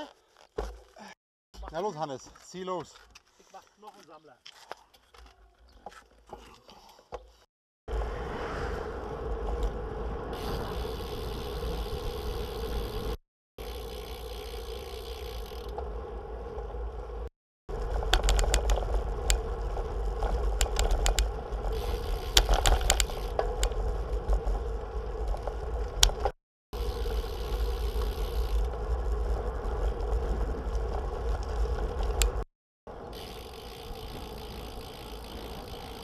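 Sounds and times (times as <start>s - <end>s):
bike clicks and rattles: 0.0s - 7.5s, 9.4s - 36.0s
bicycle tyre noise on road: 2.3s - 36.0s
wind on microphone: 7.9s - 13.1s.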